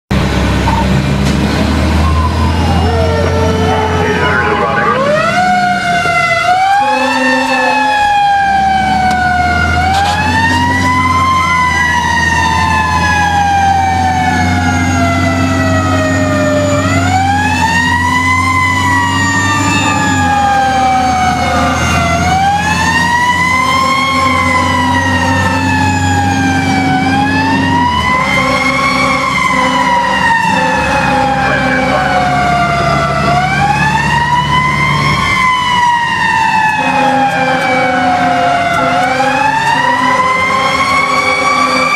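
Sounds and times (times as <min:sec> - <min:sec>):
fire truck siren wailing: 0:00.1 - 0:41.9
truck engine droning: 0:00.1 - 0:41.9.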